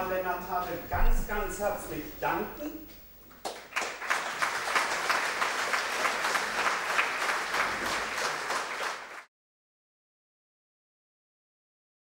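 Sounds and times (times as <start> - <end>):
audience applauding: 3.4 - 9.3.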